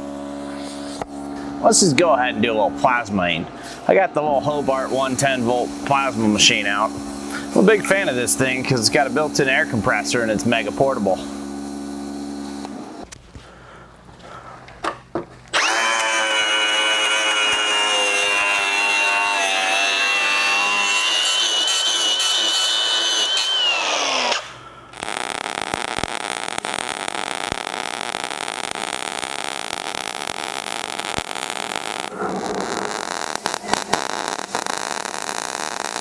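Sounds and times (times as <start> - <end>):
welding arc crackling: 4.3 - 13.2, 15.5 - 36.0
angle grinder whining: 15.5 - 36.0.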